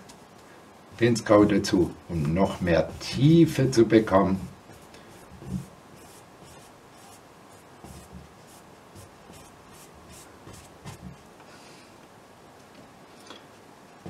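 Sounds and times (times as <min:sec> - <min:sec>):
brush strokes on canvas: 0:02.2 - 0:11.3.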